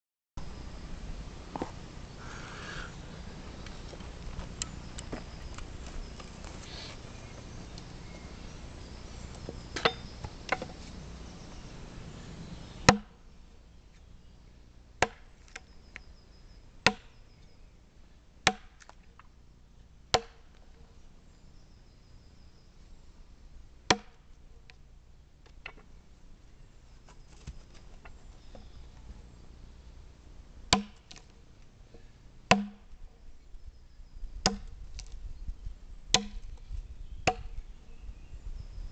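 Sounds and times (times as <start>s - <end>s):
axe chopping into log: 9.8s - 10.7s, 12.9s - 13.2s, 15.0s - 15.3s, 16.8s - 17.1s, 18.5s - 19.0s, 20.1s - 20.5s, 23.9s - 24.2s, 30.7s - 31.2s, 32.5s - 32.9s, 34.4s - 34.7s, 36.1s - 36.5s, 37.3s - 37.6s.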